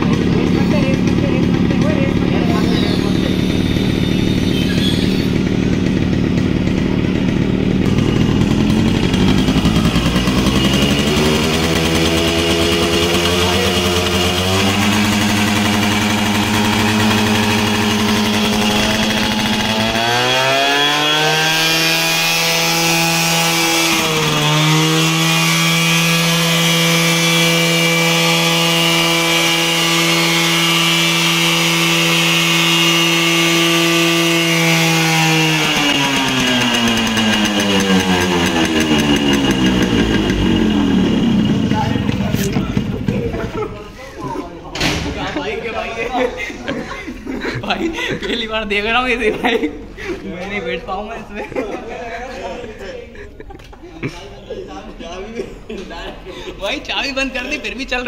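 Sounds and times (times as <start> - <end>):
motorcycle engine revving: 0.0 - 43.9.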